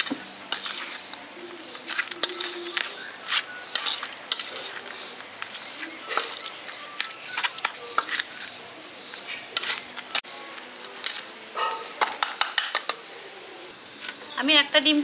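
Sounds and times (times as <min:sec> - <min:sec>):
potato mash scraping in a bowl: 0:00.0 - 0:11.3.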